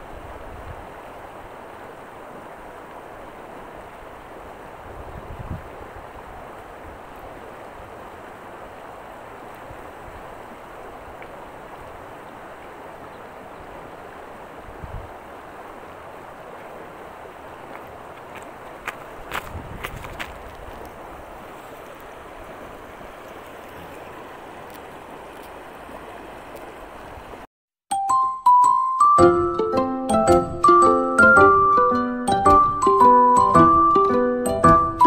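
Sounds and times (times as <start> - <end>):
river water rushing: 0.0 - 27.5
wind buffeting microphone: 4.7 - 8.0, 14.6 - 15.3, 17.8 - 21.6.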